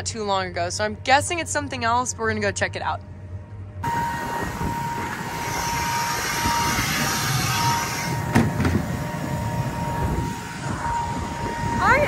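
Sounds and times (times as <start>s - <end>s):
steady machine hum: 0.0s - 12.0s
wind buffeting microphone: 3.8s - 12.0s.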